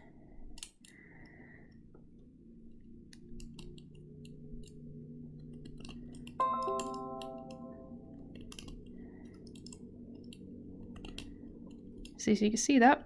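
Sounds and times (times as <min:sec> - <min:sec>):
cuticle cutter clicking and scraping: 0:00.4 - 0:01.0
sustained musical note: 0:06.4 - 0:08.3
soft background music: 0:06.4 - 0:11.0.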